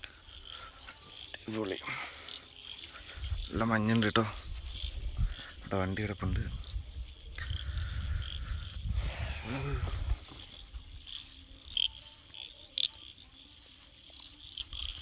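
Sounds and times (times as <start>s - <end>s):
birds and insects chirring: 0.0s - 15.0s
wind buffeting microphone: 4.4s - 10.3s.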